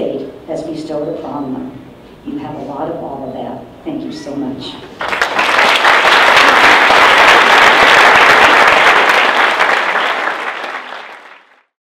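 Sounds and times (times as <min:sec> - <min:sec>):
audience applauding: 0:05.0 - 0:11.7.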